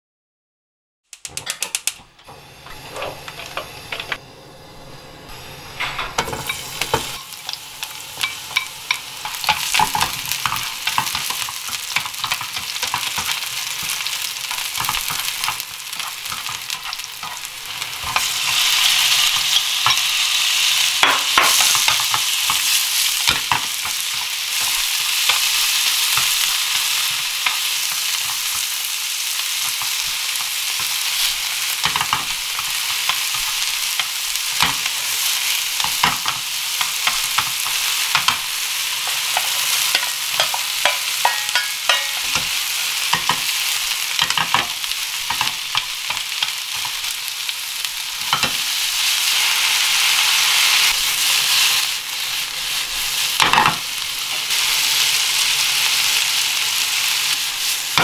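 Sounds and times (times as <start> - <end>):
oil sizzling in a frying pan: 5.3 - 58.0
wooden utensil scraping a pan: 29.6 - 43.5.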